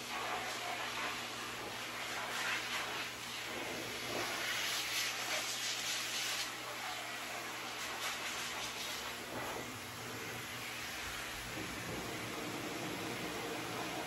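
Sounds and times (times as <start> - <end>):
dog dryer blowing air: 0.0 - 14.0.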